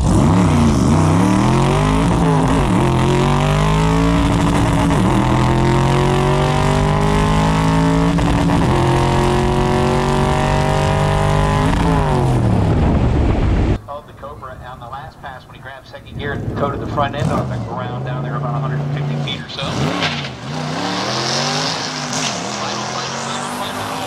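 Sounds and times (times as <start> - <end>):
car engine at full throttle: 0.0 - 13.8, 16.0 - 24.0
wind noise: 11.5 - 13.8.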